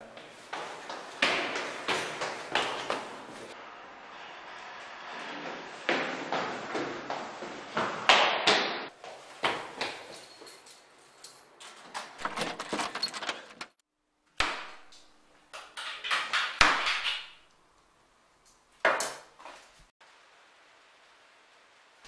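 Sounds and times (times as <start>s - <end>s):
door and keys clicking: 10.0s - 13.8s.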